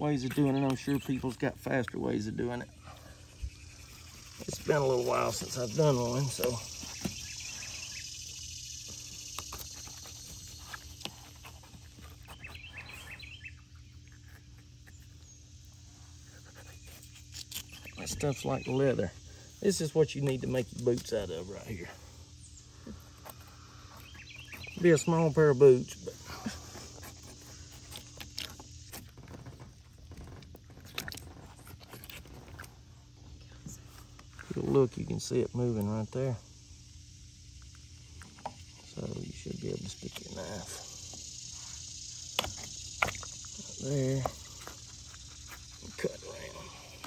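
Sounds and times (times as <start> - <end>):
bird chirping: 0.0 - 29.0
insects and crickets hissing: 0.0 - 47.0
steady low hum: 0.0 - 47.0
knife clicks and scrapes: 16.9 - 18.0.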